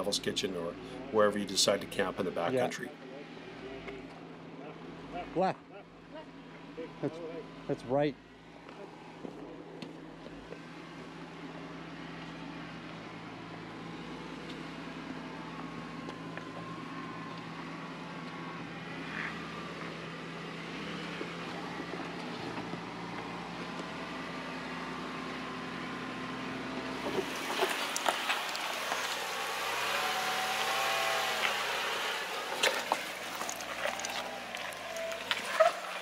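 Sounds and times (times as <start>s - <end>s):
truck engine at low revs: 0.0s - 36.0s
tyres knocking over rock: 27.0s - 29.4s.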